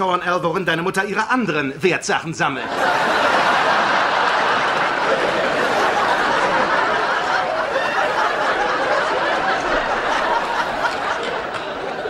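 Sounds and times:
studio audience laughing: 2.6s - 12.0s.

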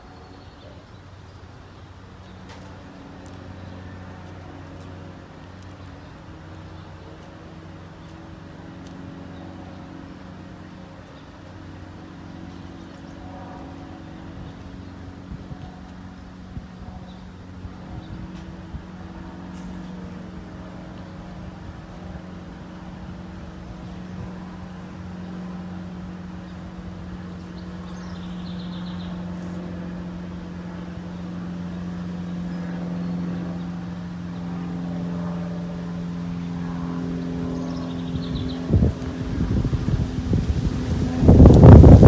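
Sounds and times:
engine running: 0.0s - 42.0s.

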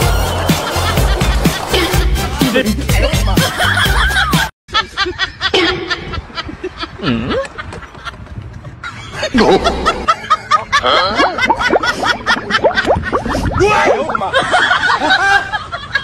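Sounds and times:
snickering laughter: 3.4s - 13.4s.

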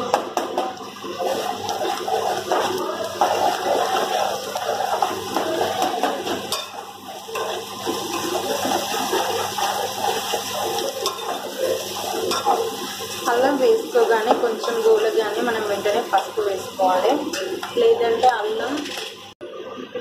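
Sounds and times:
ladle stirring in pan: 0.0s - 19.3s
vegetables sizzling in oil: 0.0s - 19.3s.

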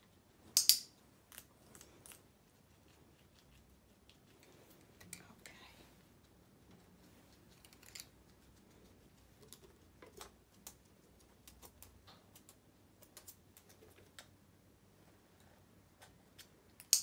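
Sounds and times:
guinea pig chewing hay: 0.0s - 5.1s, 5.9s - 14.4s.

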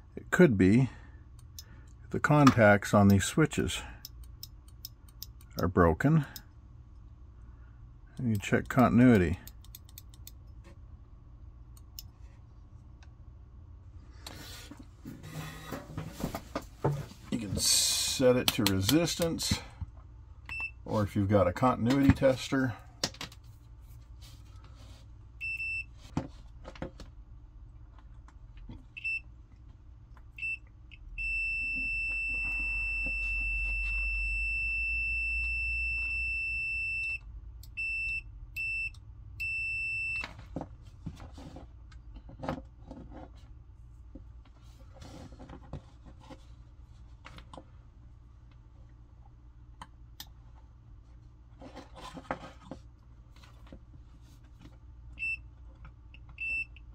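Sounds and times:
faint switch and lead clicks: 8.1s - 10.6s
multimeter continuity beeps: 30.4s - 40.3s, 56.2s - 56.8s.

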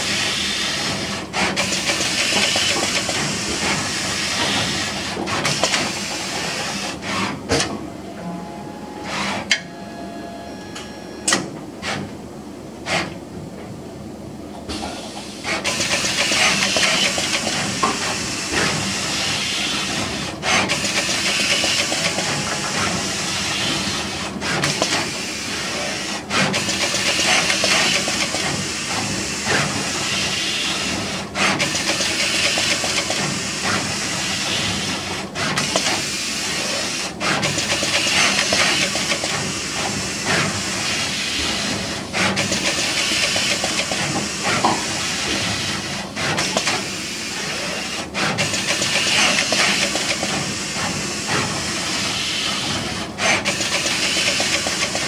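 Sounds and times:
machine airy hiss: 14.8s - 55.0s.

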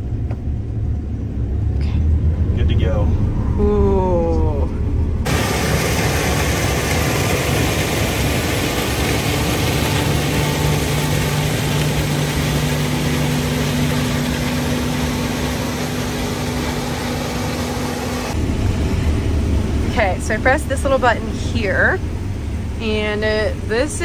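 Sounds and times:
combine harvester running: 5.1s - 24.0s.

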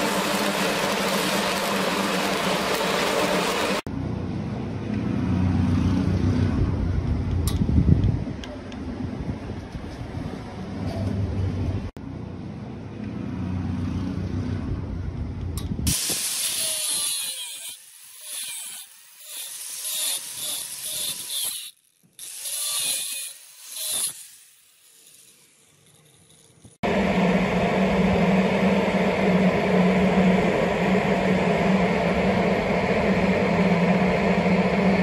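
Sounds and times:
angle grinder grinding steel: 0.0s - 3.9s, 15.9s - 26.8s
low rumbling noise: 0.0s - 15.9s, 26.8s - 35.0s.

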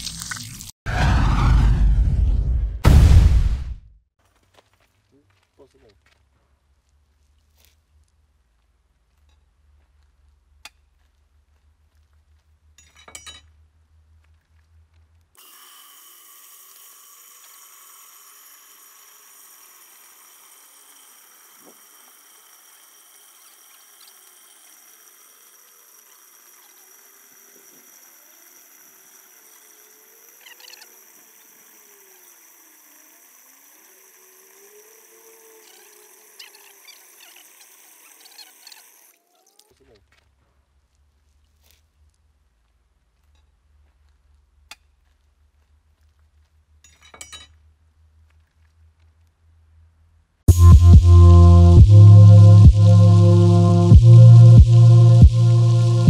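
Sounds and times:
faint clinks: 12.8s - 13.6s.

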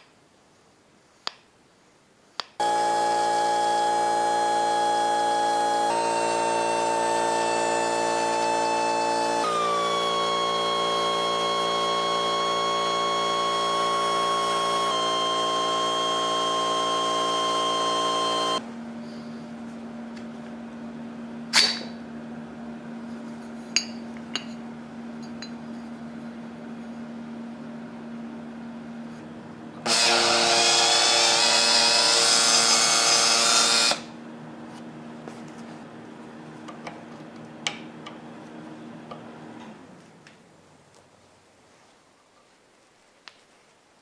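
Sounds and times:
rotary grinder grinding steel: 2.6s - 18.6s, 29.8s - 34.1s
power tool running: 2.6s - 19.3s, 29.7s - 34.6s.

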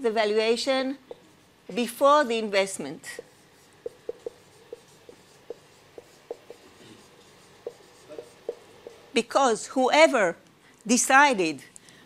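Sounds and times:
marker squeaking on whiteboard: 1.1s - 1.4s, 3.0s - 9.2s.

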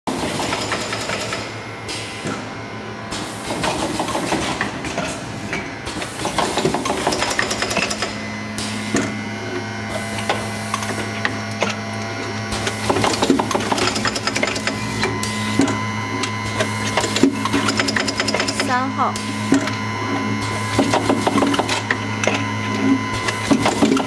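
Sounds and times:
machine hum: 0.1s - 24.0s
pneumatic clicks and knocks: 3.1s - 9.2s, 10.0s - 11.8s, 12.5s - 15.8s, 16.5s - 19.8s.

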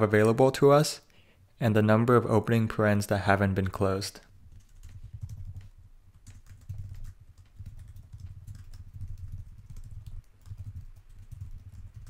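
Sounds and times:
typing on keyboard: 4.5s - 12.0s.

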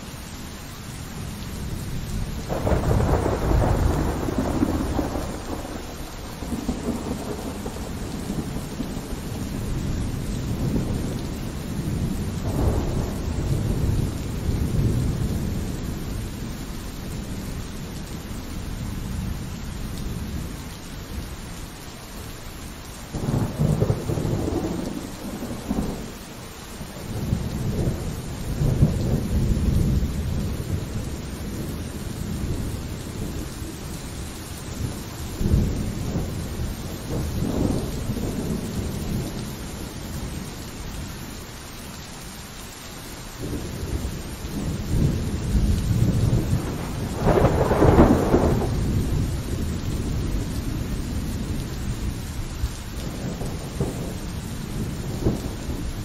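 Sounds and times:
steady rain: 0.0s - 56.0s
rolling thunder: 1.6s - 16.6s, 23.2s - 26.2s, 26.8s - 40.4s, 43.4s - 56.0s.

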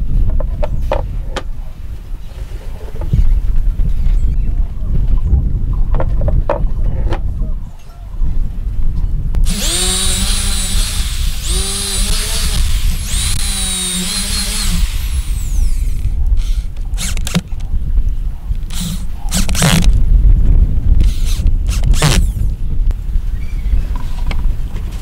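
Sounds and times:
drill driving screws: 9.4s - 17.4s, 18.7s - 19.9s, 21.0s - 22.5s
electric drill boring into wood: 9.4s - 17.4s, 18.7s - 19.9s, 21.0s - 22.5s.

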